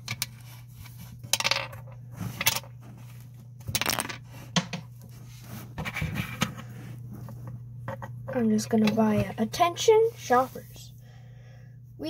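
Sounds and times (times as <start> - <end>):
steady low hum: 0.0 - 12.0
plastic bricks clicking and clattering: 3.7 - 4.2.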